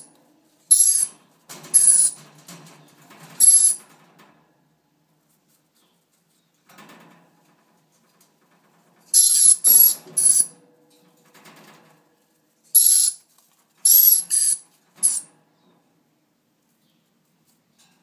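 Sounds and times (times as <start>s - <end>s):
parrot harsh screeches: 0.7s - 1.1s, 9.2s - 10.5s, 12.8s - 13.2s, 13.9s - 15.2s.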